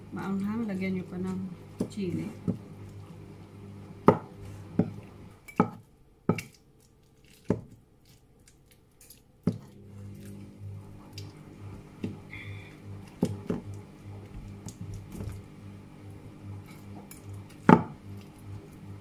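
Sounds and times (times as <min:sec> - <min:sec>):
pestle mashing avocado: 0:04.0 - 0:05.0.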